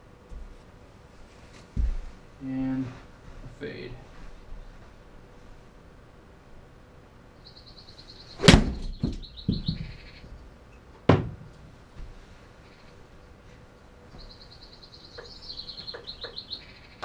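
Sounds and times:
golf club striking ball: 8.4 - 8.9
sharp knock: 8.4 - 10.0.

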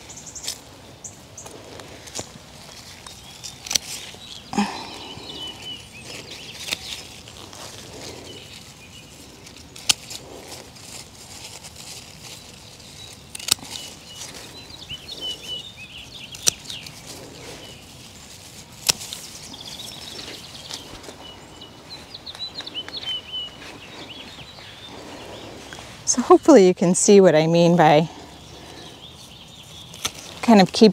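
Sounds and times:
birds chirping: 0.0 - 30.9
hand pruners snipping stems: 1.4 - 21.3, 28.8 - 30.9.

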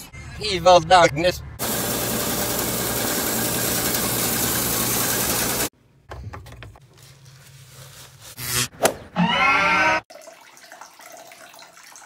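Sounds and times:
drain-cleaning machine running: 1.6 - 5.7.

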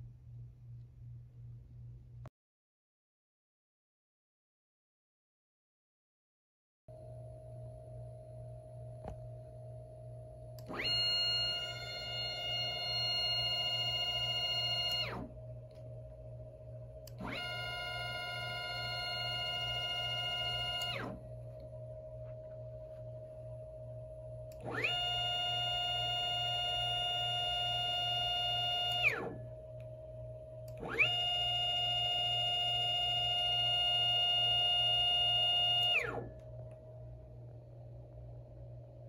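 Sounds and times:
low hum: 0.0 - 2.3, 6.9 - 39.0
faint steady tone: 6.9 - 39.0
stepper motor whining: 10.6 - 15.8, 17.0 - 21.3, 24.5 - 29.5, 30.6 - 36.4.

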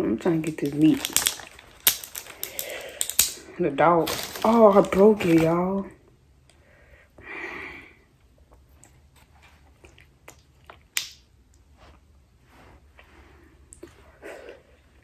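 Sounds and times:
shellfish shells cracking: 0.5 - 3.4
chewing: 8.6 - 11.0.

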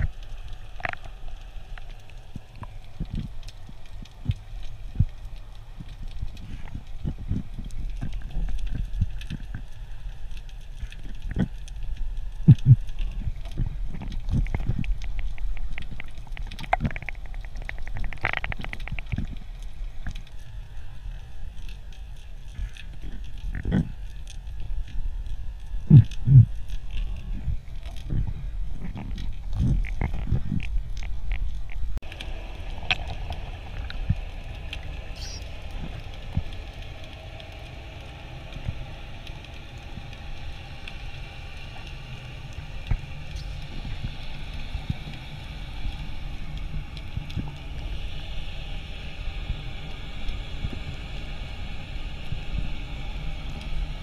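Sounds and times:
sharp underwater clicks: 0.0 - 20.3
faint clicks and crackles: 0.0 - 54.0
low underwater rumbling: 0.0 - 54.0.

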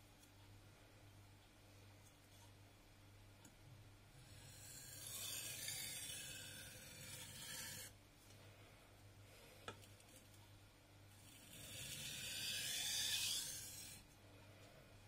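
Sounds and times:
knife scraping on whetstone: 4.3 - 7.9, 11.3 - 14.0.

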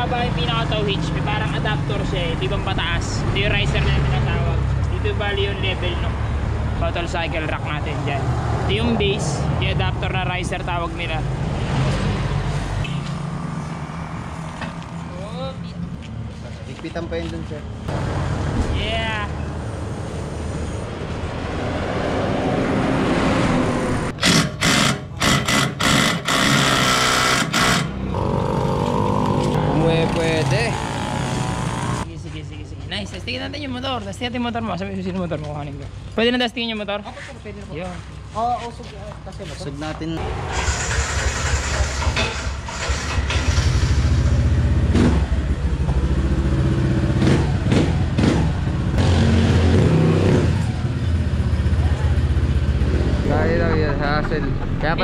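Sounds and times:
impact wrench bursts: 24.1 - 28.1, 40.4 - 44.0
scooter engine starting and idling: 40.4 - 45.2.

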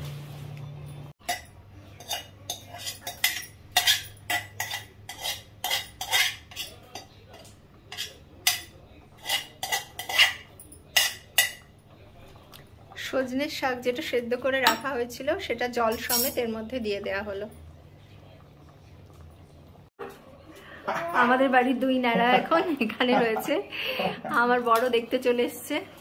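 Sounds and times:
metal spoon scraping steel container: 2.0 - 7.0, 9.2 - 11.2.

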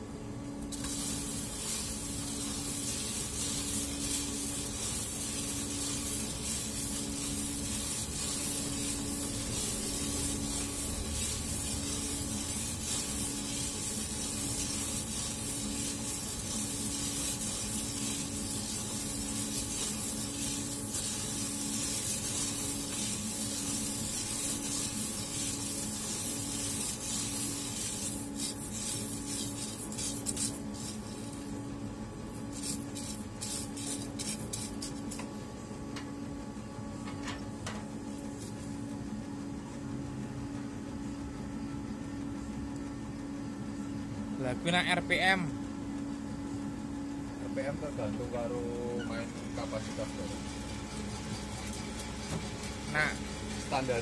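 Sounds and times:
low machine hum: 0.0 - 54.0
coffee beans rattling in tray: 0.7 - 31.4.

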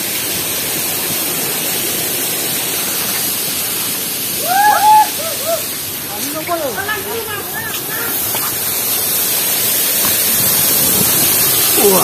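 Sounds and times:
waterfall rushing: 0.0 - 12.0
person calling: 4.4 - 8.6.

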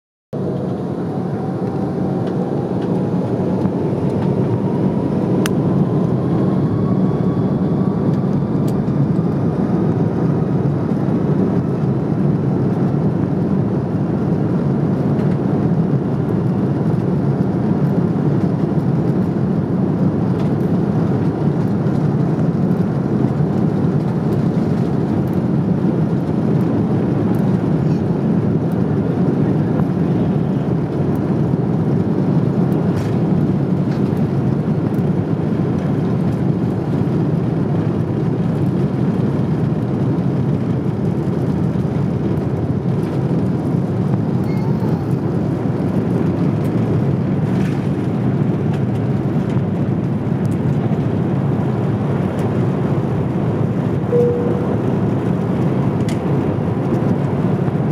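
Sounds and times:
jet engine cabin rumble: 0.3 - 57.9.

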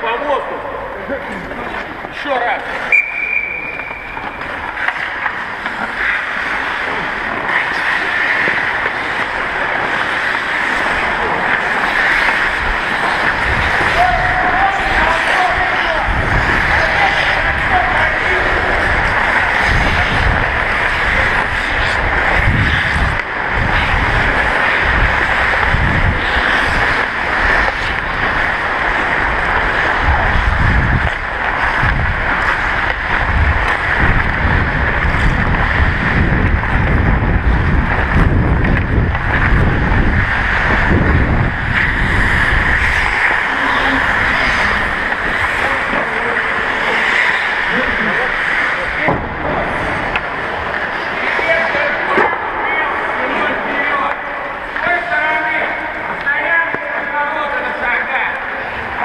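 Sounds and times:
skate blades hissing on ice: 1.3 - 52.2
wind buffeting microphone: 12.5 - 45.9.

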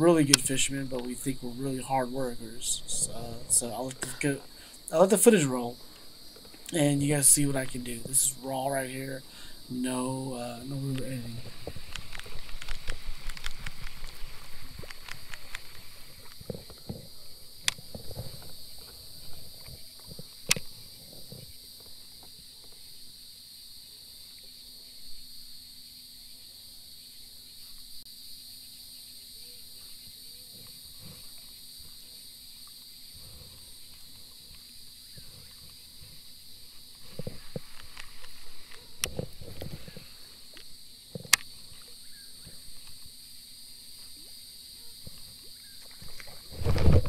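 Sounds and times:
insects chorus: 0.0 - 47.0
sharp clicks: 0.2 - 1.2.

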